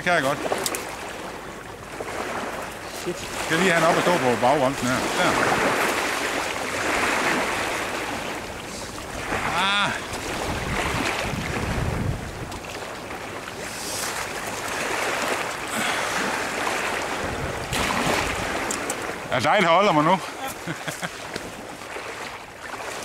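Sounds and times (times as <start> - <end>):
waves washing on shingle: 0.0 - 23.0
wind on microphone: 8.8 - 12.6, 16.1 - 19.1.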